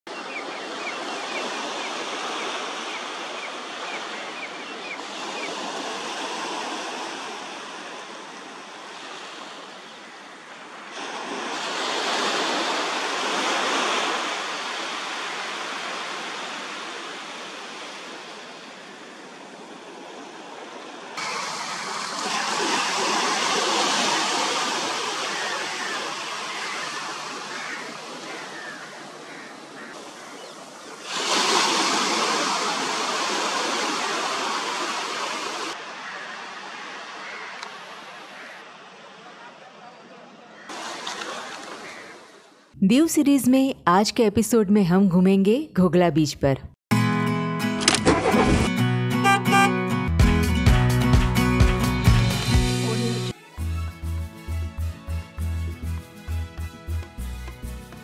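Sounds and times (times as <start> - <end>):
waves breaking on sandy beach: 0.1 - 42.8.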